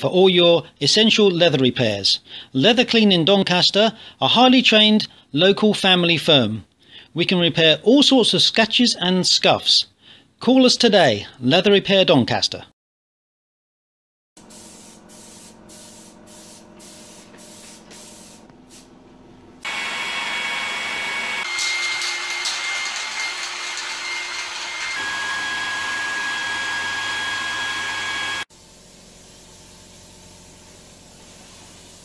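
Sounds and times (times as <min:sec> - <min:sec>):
heat gun blowing with whine: 0:19.6 - 0:28.5.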